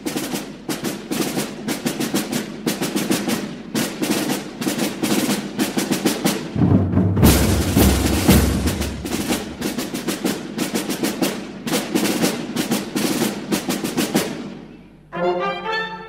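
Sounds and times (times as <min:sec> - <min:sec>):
snare drums marching cadence: 0:00.0 - 0:14.9
bass drums: 0:06.5 - 0:10.1.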